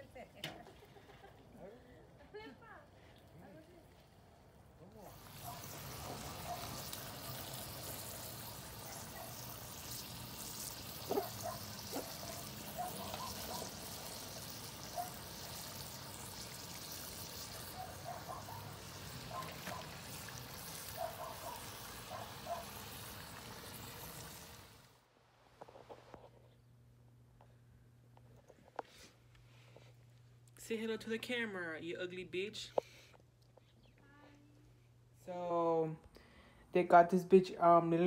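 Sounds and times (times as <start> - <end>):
food sizzling in hot oil: 5.0 - 25.0.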